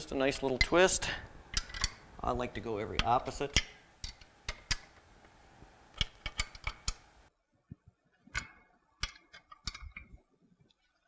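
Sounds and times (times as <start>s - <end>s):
wrench clicking on bolts: 1.5s - 2.0s, 6.0s - 7.0s.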